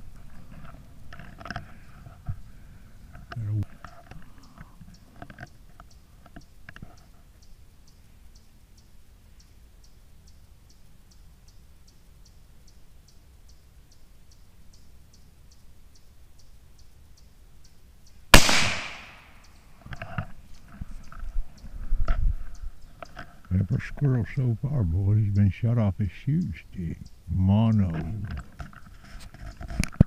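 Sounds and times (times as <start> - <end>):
rifle shot: 18.3 - 19.4.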